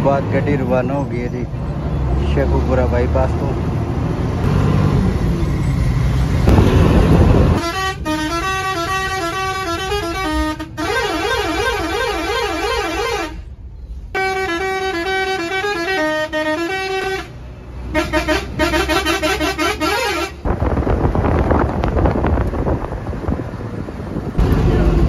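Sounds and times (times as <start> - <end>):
bus engine: 0.0 - 25.0
road noise: 0.0 - 25.0
musical horn melody: 7.5 - 13.4, 14.2 - 20.4.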